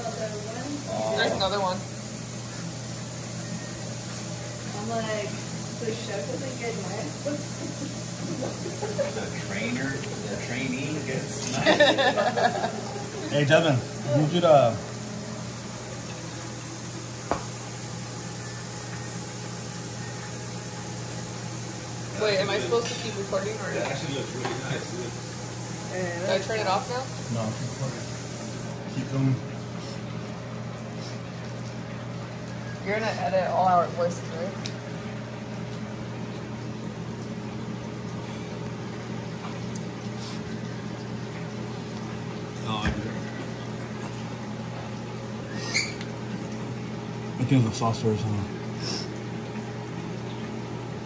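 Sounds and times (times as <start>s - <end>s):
electrical hum and hiss: 0.0s - 51.0s.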